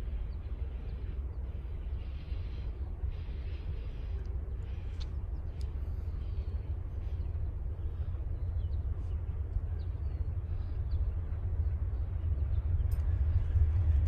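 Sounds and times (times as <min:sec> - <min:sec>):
distant diesel locomotive rumble: 0:00.0 - 0:14.0.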